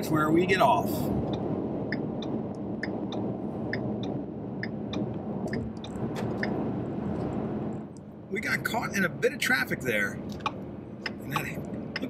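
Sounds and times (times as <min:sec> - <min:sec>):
road and engine noise in car: 0:00.0 - 0:12.0
turn signal ticking: 0:01.1 - 0:08.2, 0:10.2 - 0:12.0.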